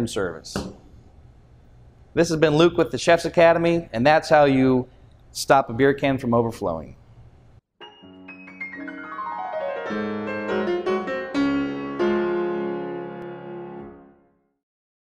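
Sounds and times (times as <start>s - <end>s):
piano jingle: 7.8s - 14.3s.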